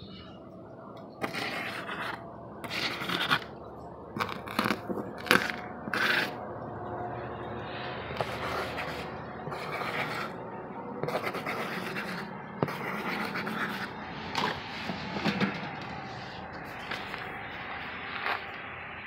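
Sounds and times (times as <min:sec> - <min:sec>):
cardboard and paper scratching: 0:01.2 - 0:03.5, 0:04.2 - 0:06.4, 0:08.2 - 0:10.4, 0:11.0 - 0:17.4, 0:18.1 - 0:18.5.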